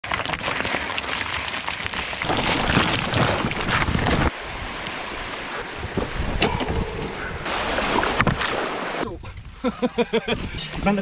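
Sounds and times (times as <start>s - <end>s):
bike rattling: 0.0s - 4.4s
tyres crunching over stones: 0.0s - 6.4s
wind on microphone: 2.4s - 9.6s.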